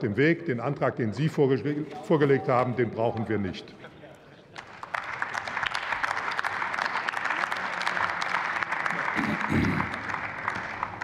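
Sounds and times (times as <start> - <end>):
crowd applauding: 4.5 - 11.0.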